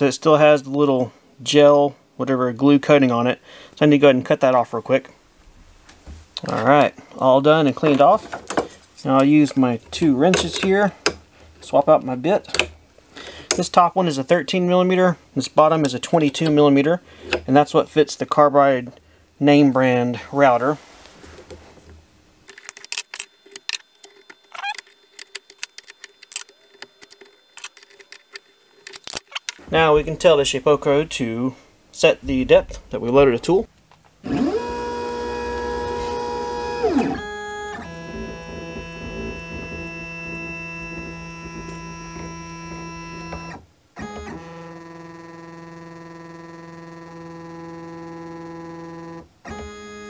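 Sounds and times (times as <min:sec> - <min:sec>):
faint steady hum: 0:00.0 - 0:50.0
stepper motors whining: 0:34.2 - 0:43.6.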